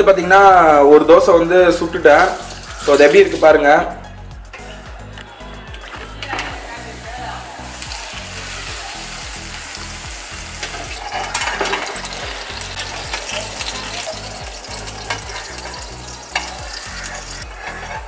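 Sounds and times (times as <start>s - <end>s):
batter sizzling in oil: 2.0s - 3.6s, 6.6s - 18.0s
spatula scraping pan: 10.6s - 18.0s.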